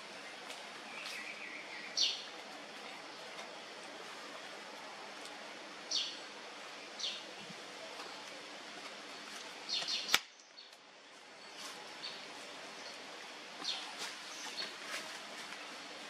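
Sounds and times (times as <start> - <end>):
outdoor background hiss: 0.0 - 16.0
sharp click: 9.8 - 10.5.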